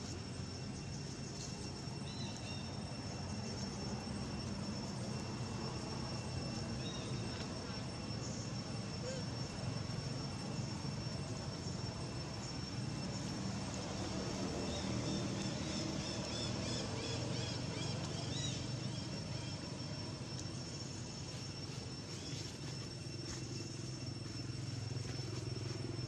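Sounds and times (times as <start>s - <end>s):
high insect tone: 0.0s - 26.0s.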